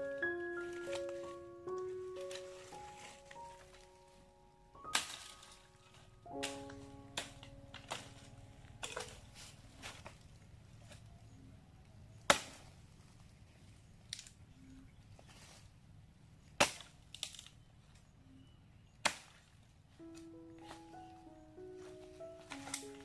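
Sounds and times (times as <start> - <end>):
background music with melody: 0.0 - 9.8, 20.0 - 23.0
bush knife chopping dry branches: 4.9 - 5.7, 6.3 - 9.2, 12.3 - 12.7, 16.6 - 17.5, 19.0 - 19.4, 21.8 - 23.0.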